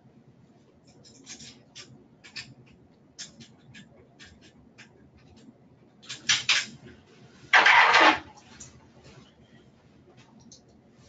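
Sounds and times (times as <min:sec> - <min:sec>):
small metal parts clicking and scraping: 0:00.9 - 0:02.5.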